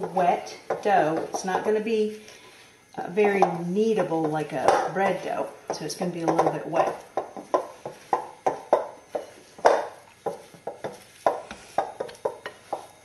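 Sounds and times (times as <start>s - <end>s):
spatula knocking glass bowl: 5.7s - 13.0s.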